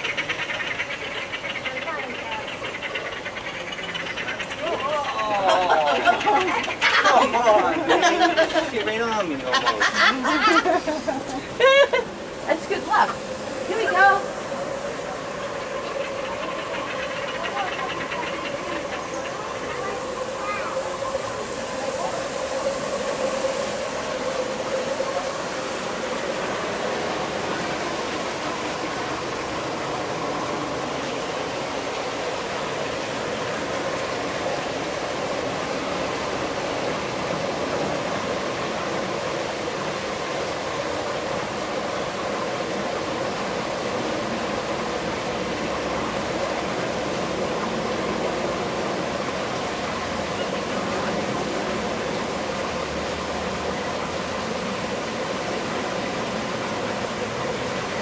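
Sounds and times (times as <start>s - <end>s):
running water: 0.0s - 58.0s.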